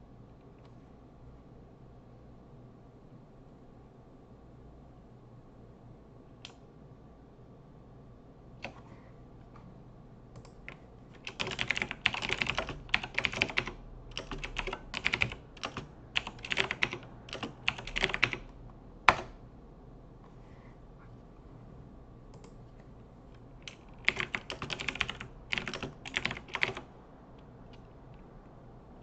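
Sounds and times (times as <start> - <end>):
typing on computer keyboard: 8.6 - 8.8, 10.4 - 19.4, 23.6 - 26.9.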